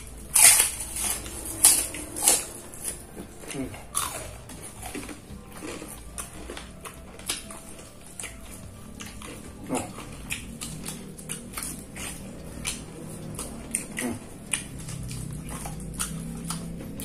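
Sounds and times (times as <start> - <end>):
chewing and crunching: 0.0 - 17.0.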